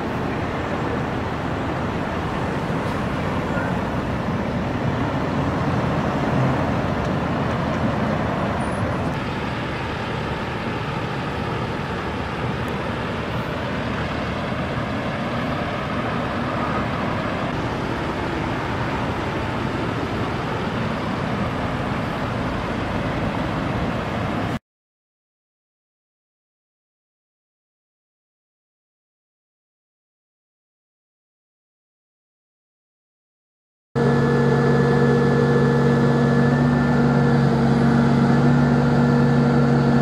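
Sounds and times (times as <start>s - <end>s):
road traffic hum: 0.0s - 24.6s, 34.0s - 40.0s.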